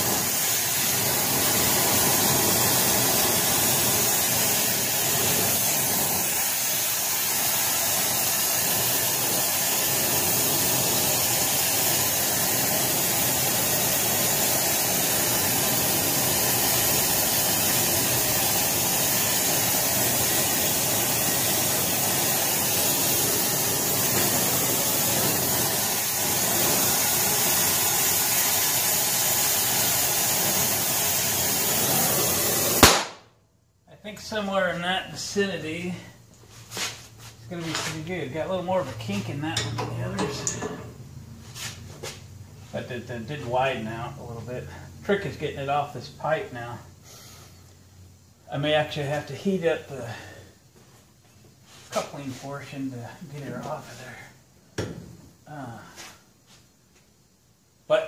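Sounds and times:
torch flame hissing: 0.0s - 33.2s.

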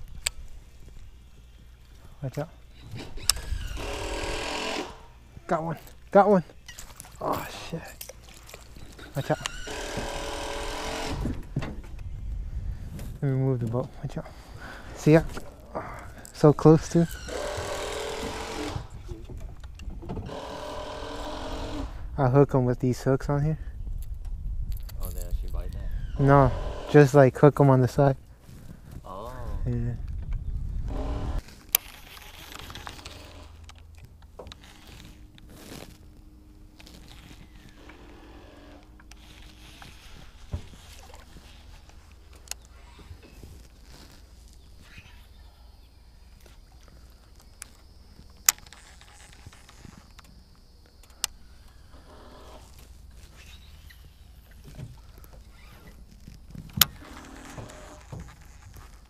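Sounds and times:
hand handling camera: 31.4s - 38.2s, 38.8s - 45.4s, 46.3s - 51.8s, 52.7s - 59.0s
sharp clicks of fishing gear: 46.4s - 51.8s.

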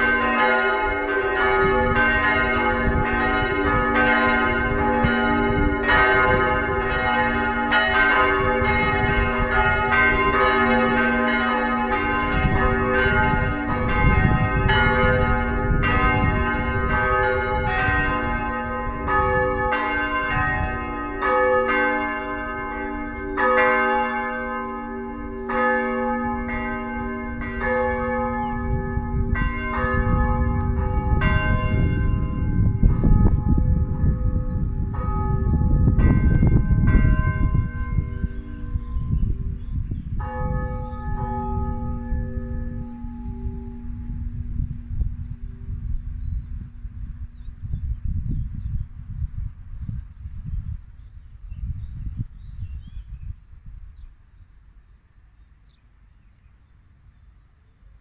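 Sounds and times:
church bells ringing: 0.0s - 48.1s.

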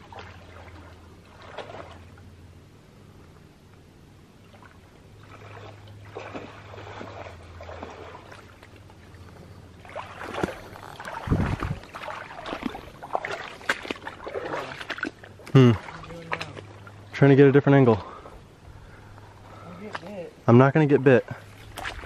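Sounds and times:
splashing steps in water: 4.6s - 8.9s, 9.8s - 17.0s, 21.4s - 22.0s.

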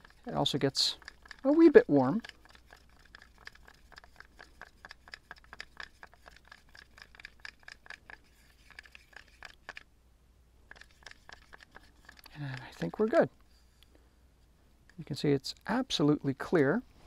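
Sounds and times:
stir stick scraping paper cup: 0.0s - 9.8s, 10.7s - 13.8s.

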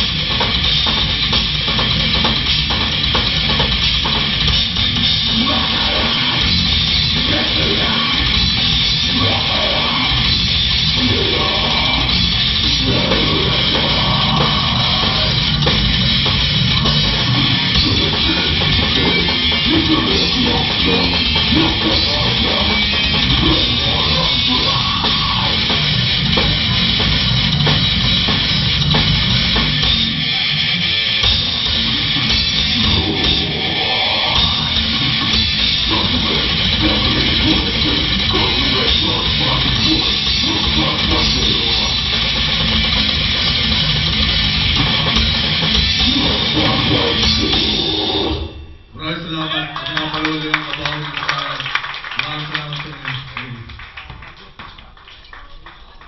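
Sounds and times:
death metal band playing live: 0.0s - 51.5s
vocalist growling: 5.2s - 15.6s, 17.2s - 25.9s, 31.8s - 42.2s, 46.0s - 48.6s.

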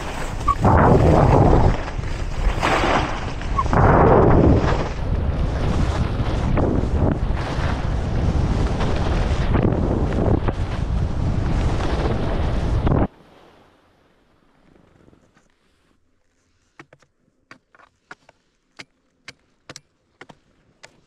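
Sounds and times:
wind rushing over microphone: 0.0s - 13.1s.

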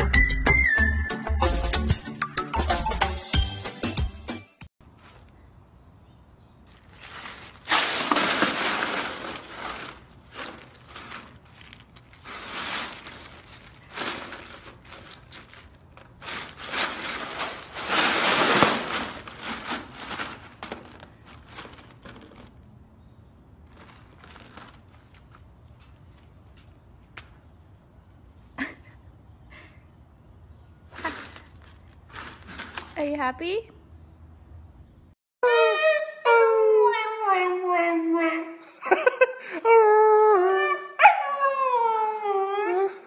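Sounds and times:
ice cubes crunching and clattering: 6.7s - 22.6s, 31.0s - 32.9s.

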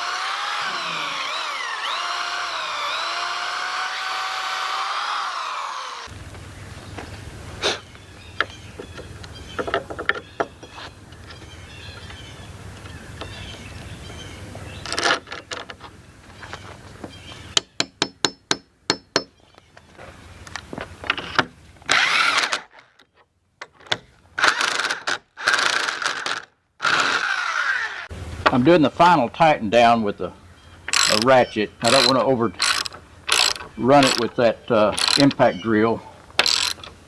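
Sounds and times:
sharp metallic taps: 17.6s - 19.4s
impact drill driving bolt: 21.1s - 22.8s, 30.9s - 34.3s, 35.0s - 35.4s, 36.4s - 37.0s.

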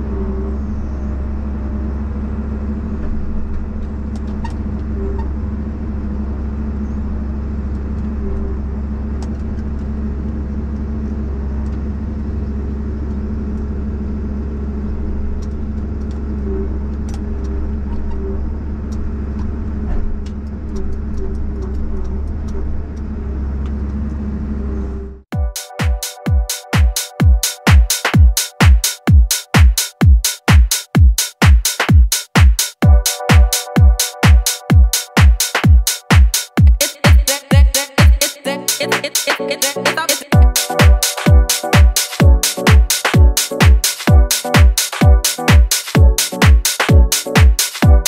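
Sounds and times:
diesel engine running: 0.0s - 25.3s
loud electronic music: 25.3s - 48.0s.

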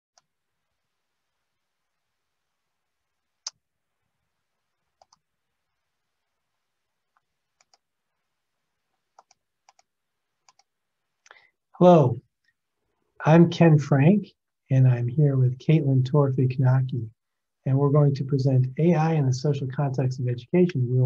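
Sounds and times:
computer mouse clicking: 5.0s - 5.2s, 7.1s - 7.9s, 9.1s - 10.7s.

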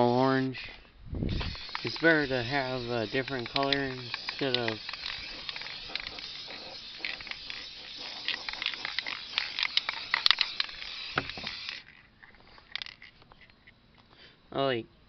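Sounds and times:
spray paint can hissing: 1.3s - 11.9s
clicks and crackles: 1.4s - 14.1s.

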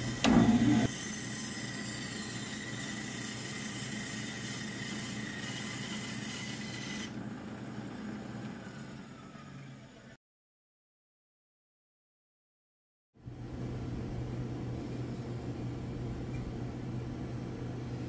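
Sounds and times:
bandsaw running: 0.0s - 7.2s.

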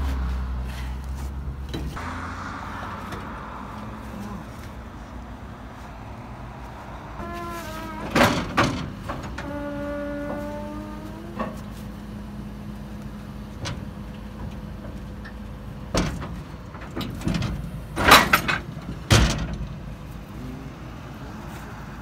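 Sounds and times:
vehicle engine idling: 0.0s - 18.1s
wheel clunks and knocks: 7.2s - 11.8s, 13.5s - 20.0s.

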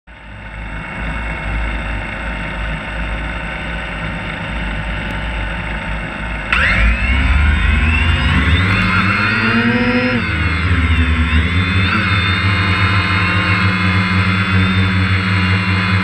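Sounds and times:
drone motors rising whine: 0.2s - 16.0s
drone propellers whirring: 0.2s - 16.0s.

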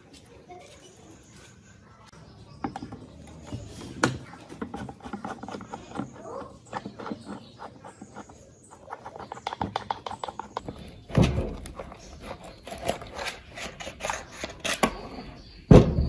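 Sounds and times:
screwdriver turning rusty screw: 4.6s - 15.2s
metal knocks and clunks: 15.6s - 16.0s.

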